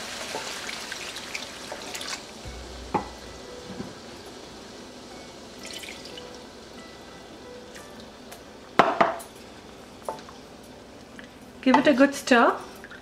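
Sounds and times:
water sizzling in hot wok: 0.0 - 13.0
sharp knock: 2.5 - 4.5.

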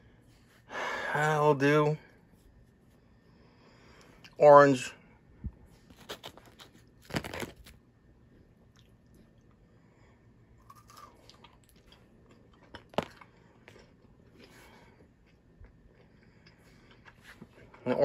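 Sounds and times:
chewing crunchy wafer bar: 5.9 - 7.8, 10.6 - 18.0.

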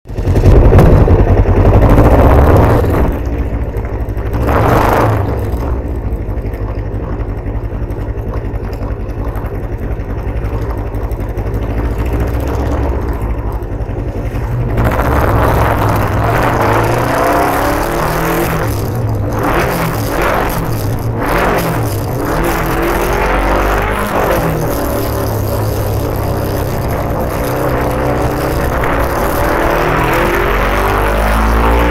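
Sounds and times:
motorcycle engine revving: 0.1 - 31.9.

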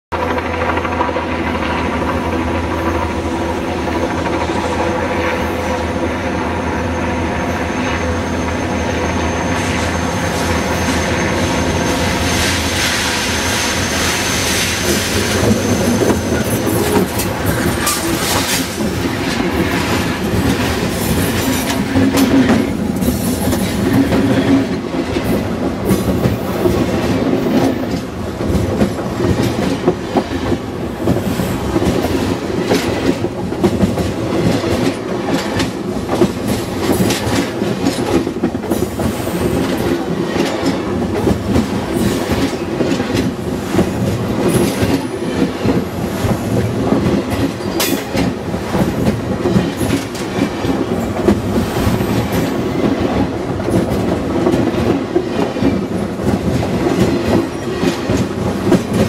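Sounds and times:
train wheels rumbling: 0.1 - 59.0
wheels clicking on rails: 13.7 - 59.0.

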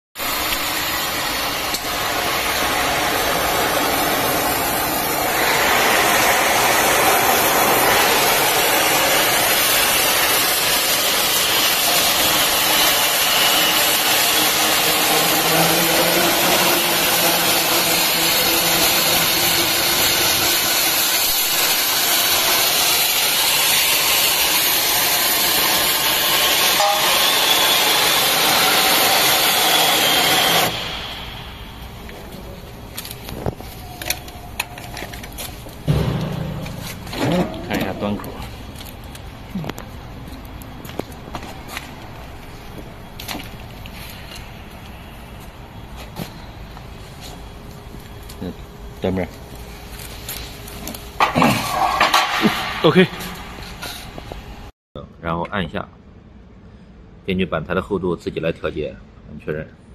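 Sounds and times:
cutting torch hissing: 0.2 - 32.2.

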